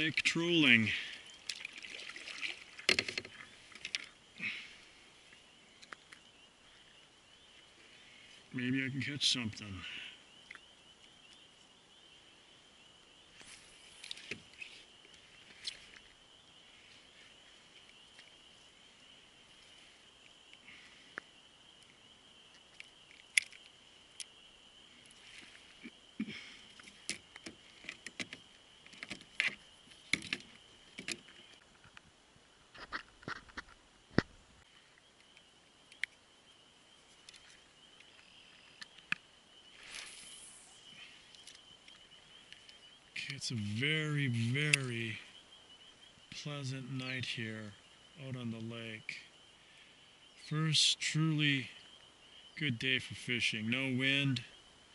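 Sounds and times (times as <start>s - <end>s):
distant animals calling: 0.0s - 31.6s, 34.6s - 54.9s
paddle and fishing gear knocks: 2.8s - 4.1s.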